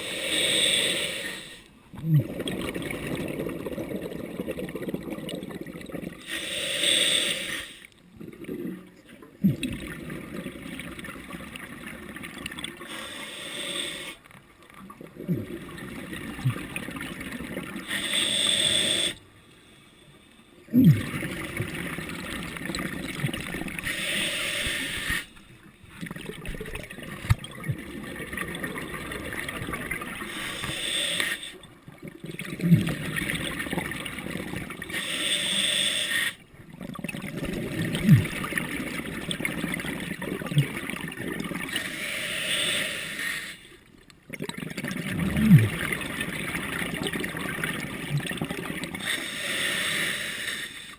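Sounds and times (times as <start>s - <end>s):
diver breathing through regulator: 0.0s - 1.7s, 6.2s - 7.9s, 12.8s - 14.2s, 17.8s - 20.4s, 23.8s - 25.5s, 30.2s - 31.6s, 34.8s - 36.4s, 41.7s - 43.8s, 49.0s - 50.9s.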